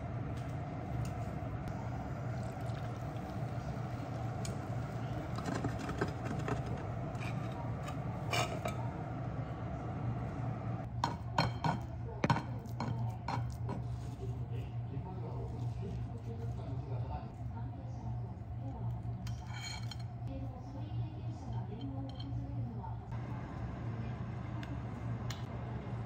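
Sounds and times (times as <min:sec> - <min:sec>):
steady low hum: 0:00.0 - 0:26.0
kitchenware clinks and scrapes: 0:05.4 - 0:08.9, 0:19.2 - 0:20.1.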